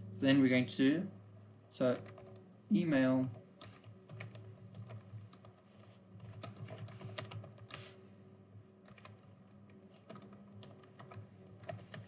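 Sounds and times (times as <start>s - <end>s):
faint low hum: 0.0s - 12.0s
keyboard typing: 1.8s - 2.4s, 3.1s - 7.9s, 8.8s - 12.0s.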